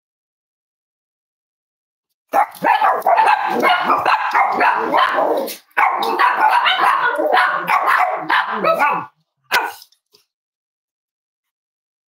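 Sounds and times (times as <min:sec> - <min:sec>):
dogs barking: 0:02.3 - 0:09.9.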